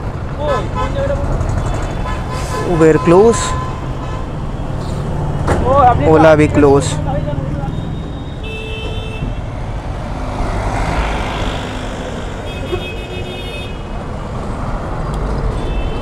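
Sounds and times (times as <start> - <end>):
road traffic: 0.0 - 16.0
vehicle horn: 0.7 - 4.3, 7.7 - 9.5, 12.4 - 14.0, 15.5 - 16.0.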